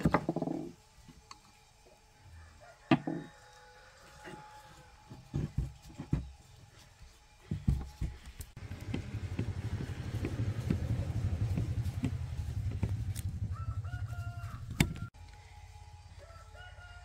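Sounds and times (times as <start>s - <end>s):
rooster crowing: 2.2s - 5.3s, 13.2s - 15.2s, 16.1s - 17.0s
motor rumble with fast pulses: 8.5s - 15.2s.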